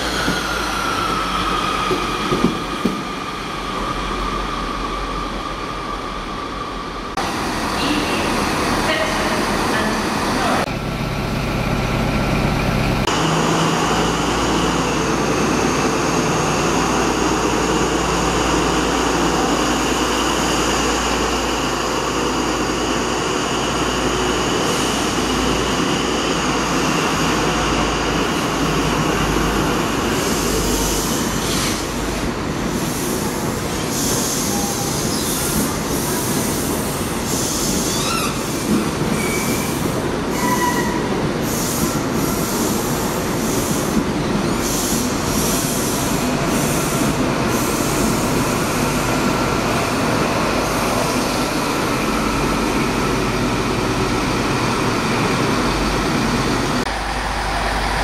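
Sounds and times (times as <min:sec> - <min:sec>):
diesel train engine rumble and whine: 0:00.0 - 0:58.0
train coaches rail noise: 0:00.0 - 0:58.0
wheel squeals: 0:37.7 - 0:41.1.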